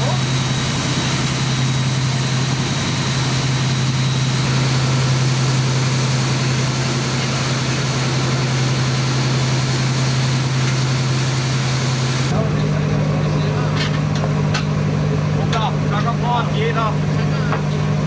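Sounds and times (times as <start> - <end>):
boat engine humming: 0.0 - 18.0.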